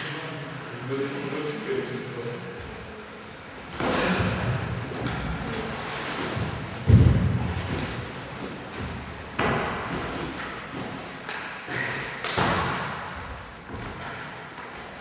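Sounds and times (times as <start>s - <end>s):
bodies thudding on gym mats: 3.7s - 11.1s.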